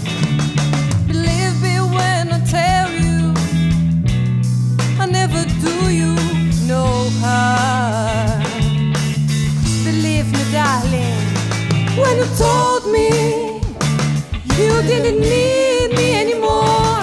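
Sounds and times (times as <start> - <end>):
band playing slow rock-soul: 0.0 - 17.0
electric bass low notes: 0.0 - 17.0.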